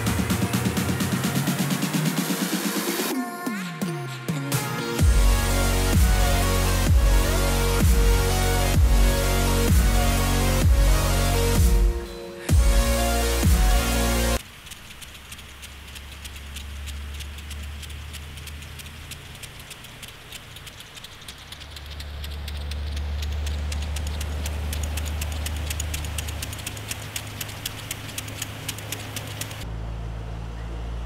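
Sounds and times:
fast ticking rattle: 5.0 - 29.7
engine idling: 5.0 - 31.0.

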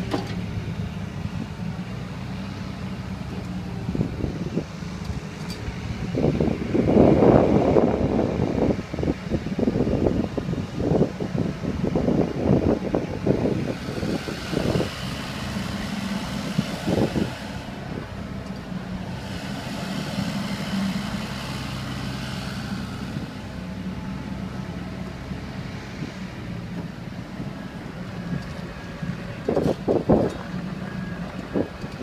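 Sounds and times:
metal clanks: 0.0 - 0.5
excavator diesel engine running: 0.0 - 32.0.

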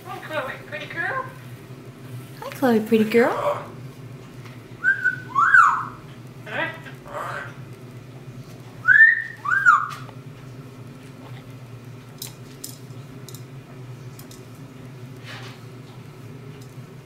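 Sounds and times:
parrot whistling: 4.8 - 6.0, 8.8 - 10.1.

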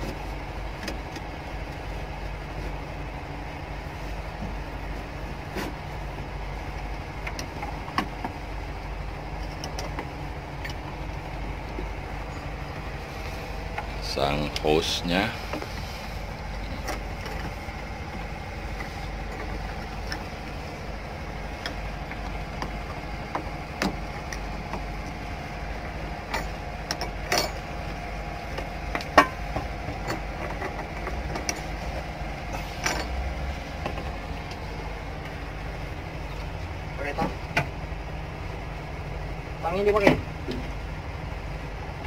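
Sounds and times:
engine droning: 0.0 - 42.0
hands clicking and knocking hoses: 5.3 - 8.5, 9.4 - 12.0, 21.5 - 25.2, 25.8 - 34.6.

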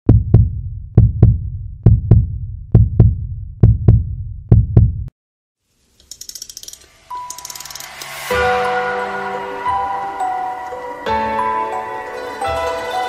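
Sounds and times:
heartbeat deep thumps: 0.0 - 5.1.

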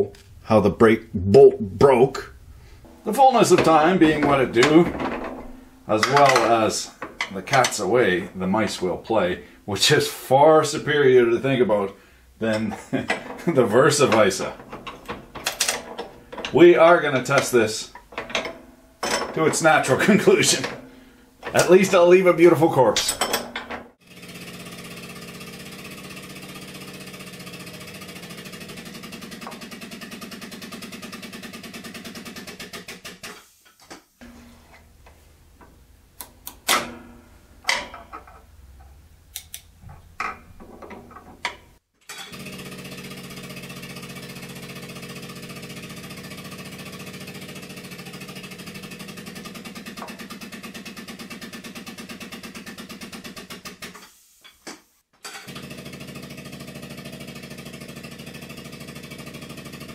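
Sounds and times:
metallic clicks and clanks: 2.8 - 7.9, 12.4 - 22.0, 35.0 - 42.4.

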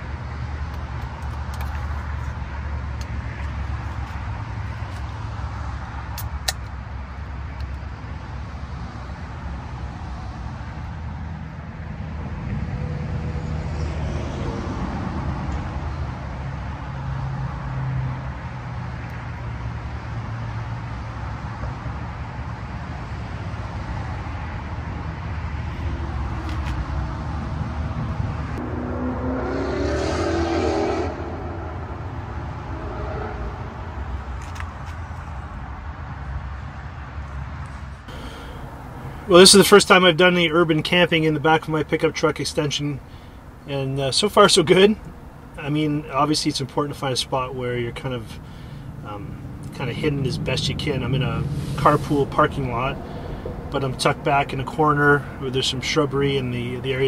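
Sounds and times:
highway traffic rumble: 0.0 - 57.0.

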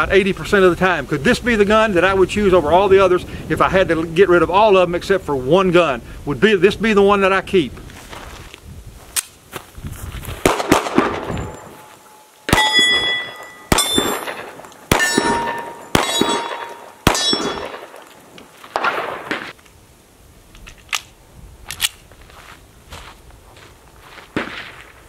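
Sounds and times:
pistol shots: 10.4 - 11.3, 12.5 - 18.1, 18.7 - 19.5
steel target clanging: 11.1 - 18.1.

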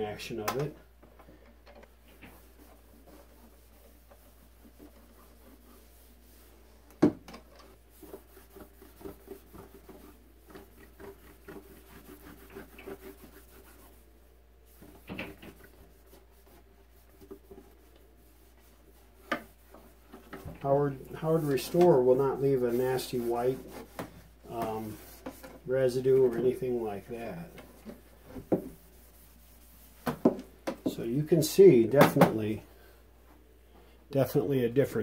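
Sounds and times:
rag scuffing on cabinet: 27.6 - 31.0.

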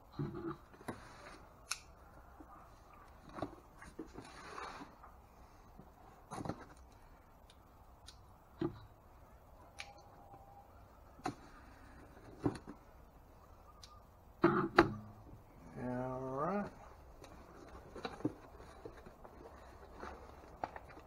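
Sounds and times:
cardboard scraping: 3.2 - 5.0, 17.3 - 21.0.

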